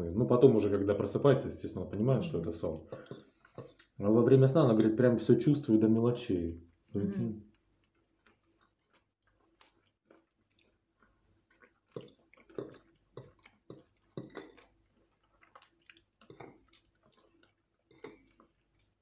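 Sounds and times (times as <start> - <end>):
chewing and mouth smacks: 2.9 - 4.0, 6.7 - 19.0.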